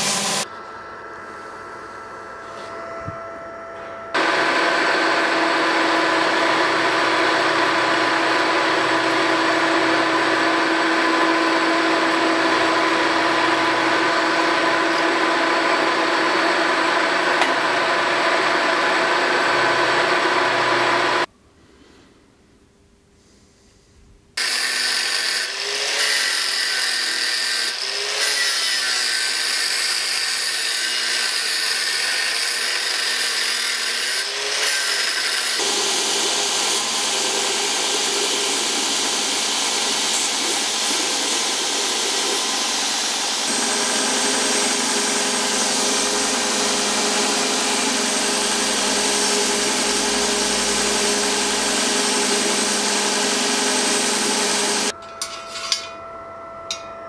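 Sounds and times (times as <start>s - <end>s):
belt grinder grinding metal: 3.8s - 17.7s, 24.4s - 55.8s.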